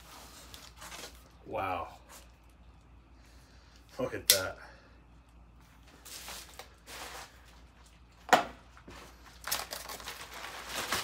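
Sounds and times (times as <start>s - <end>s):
bubble wrap rustling and crinkling: 0.0s - 1.5s, 6.0s - 8.2s, 8.8s - 11.0s.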